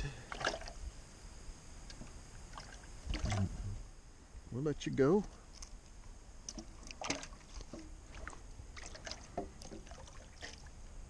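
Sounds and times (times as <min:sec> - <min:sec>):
low steady rumble: 0:00.0 - 0:11.0
splashes and knocks: 0:00.3 - 0:00.8, 0:02.0 - 0:03.5, 0:06.5 - 0:10.7
water sloshing in plastic container: 0:00.3 - 0:00.8, 0:02.5 - 0:03.6, 0:06.5 - 0:10.8.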